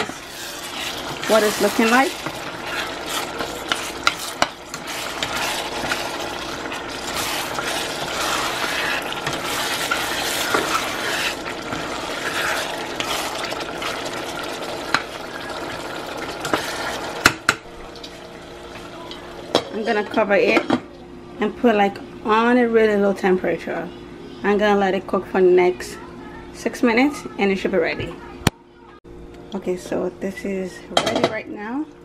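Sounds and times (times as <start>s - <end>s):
spoon stirring stew: 0.0s - 17.3s.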